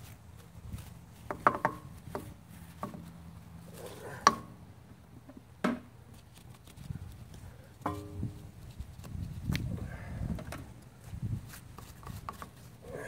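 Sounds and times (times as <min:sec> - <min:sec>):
brushes knocking on bucket and wheel: 0:01.2 - 0:03.1.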